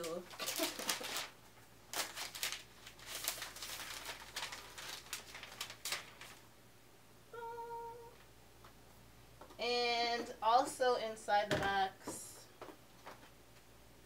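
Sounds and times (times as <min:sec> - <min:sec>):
packaging rustling and scraping: 0:00.0 - 0:06.4
person humming: 0:07.3 - 0:08.2.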